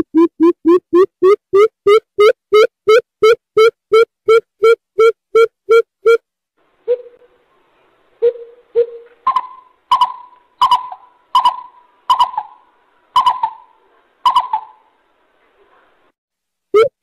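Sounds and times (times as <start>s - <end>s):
bird hooting: 6.8s - 7.3s, 8.2s - 14.9s.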